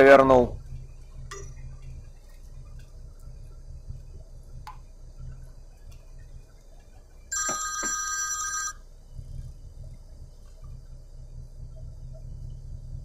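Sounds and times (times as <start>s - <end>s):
mobile phone ringtone: 7.3s - 8.8s.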